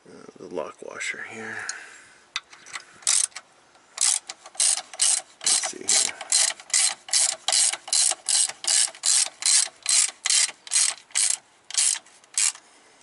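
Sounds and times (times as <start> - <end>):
socket ratchet clicking: 3.0 - 3.4, 4.0 - 12.6.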